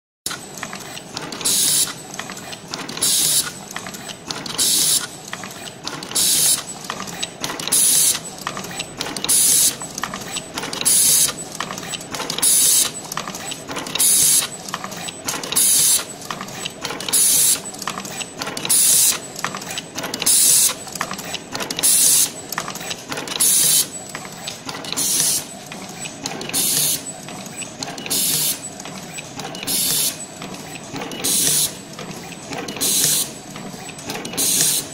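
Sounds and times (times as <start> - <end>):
crimping machine clicking and clattering: 0.3 - 34.9.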